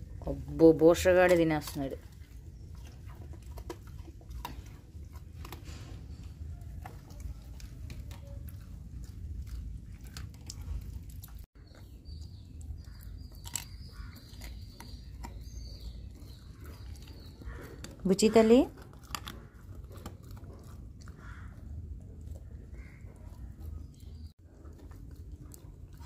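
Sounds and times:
dog chewing and crunching food: 0.0s - 26.0s
steady low rumble: 4.2s - 11.5s.

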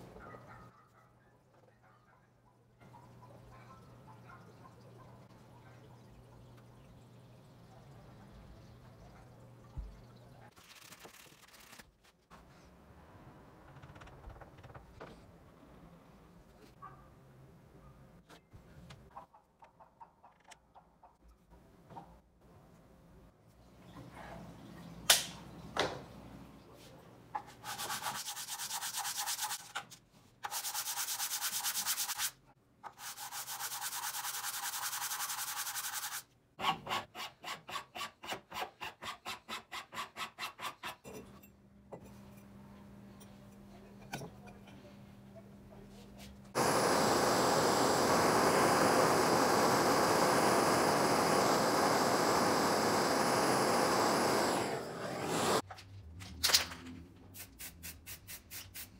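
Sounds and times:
sanding strokes: 27.6s - 29.7s, 30.4s - 32.4s, 33.0s - 36.3s.

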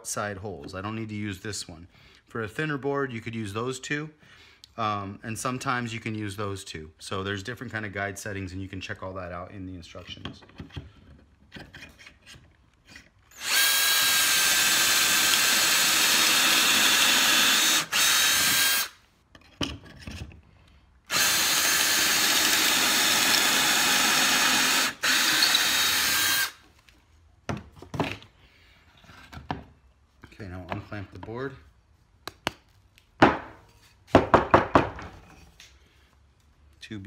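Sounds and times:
cordless drill whining: 13.3s - 19.0s, 21.1s - 26.6s.

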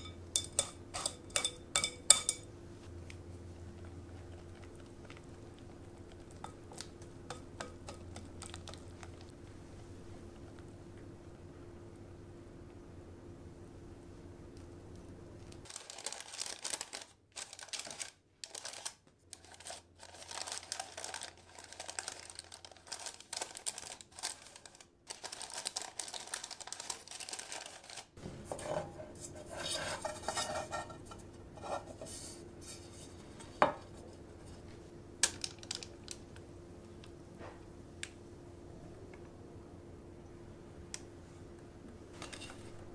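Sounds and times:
parchment paper rustling: 15.5s - 34.8s.

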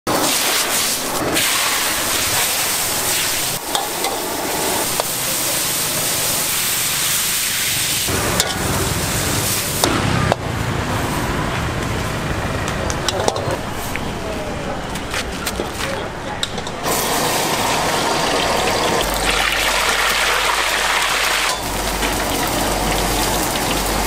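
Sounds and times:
greens sizzling in a wok: 0.1s - 10.0s, 16.8s - 24.0s
metal spatula clanking on wok: 3.7s - 4.3s, 8.4s - 8.7s.

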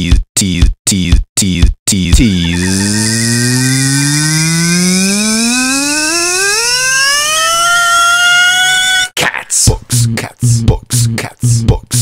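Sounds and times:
looped vocal t: 0.0s - 2.8s, 9.2s - 12.0s
rising buzzing tone: 2.2s - 9.1s.

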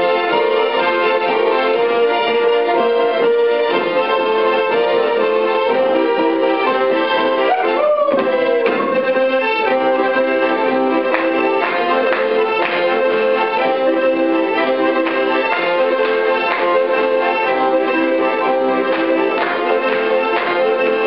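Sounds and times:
accordion folk dance tune: 0.0s - 21.0s.

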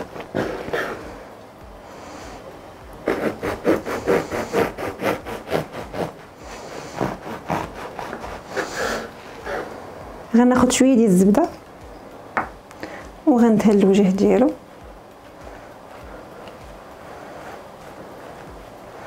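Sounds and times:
knife sawing through bread: 3.1s - 9.8s.

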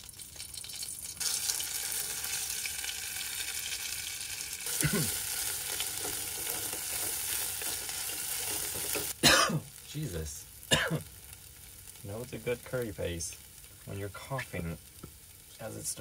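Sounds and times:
curry paste sizzling in oil: 0.0s - 16.0s
spatula stirring in pan: 4.8s - 9.2s.

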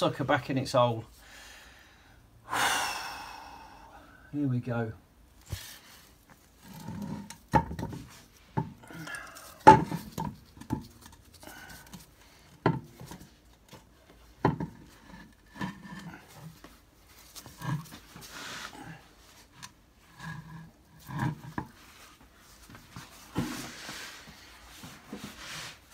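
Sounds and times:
person grunting with effort: 8.8s - 9.5s
metal clunks and knocks: 9.6s - 10.9s.

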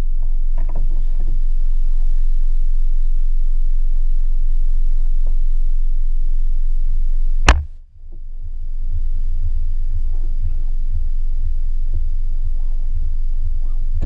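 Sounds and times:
low steady rumble: 0.0s - 14.0s
sharp knock on camera mount: 7.5s - 7.7s.

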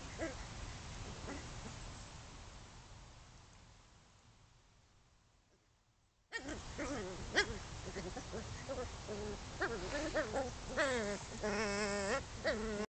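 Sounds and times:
puppies yipping and whining: 6.4s - 12.9s.

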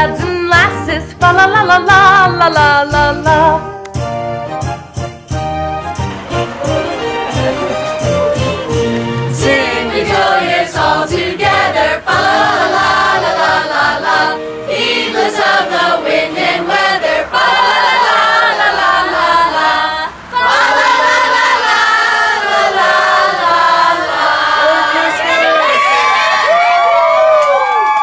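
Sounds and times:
group singing a carol: 6.3s - 25.6s.

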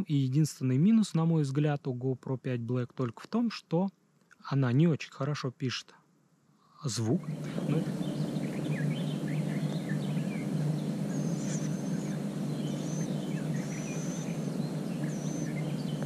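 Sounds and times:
steady low hum: 6.2s - 16.0s
small birds chirping: 6.6s - 16.0s.

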